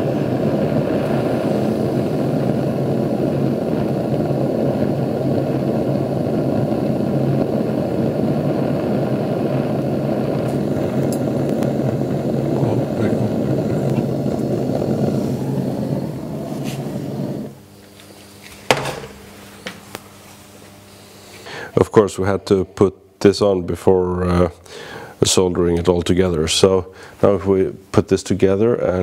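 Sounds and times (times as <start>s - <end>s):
gas torch flame rushing: 0.0s - 22.1s.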